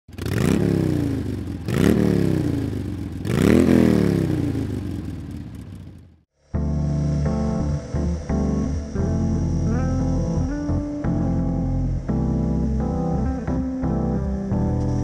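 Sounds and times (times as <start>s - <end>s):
motorcycle engine revving: 0.1s - 6.3s.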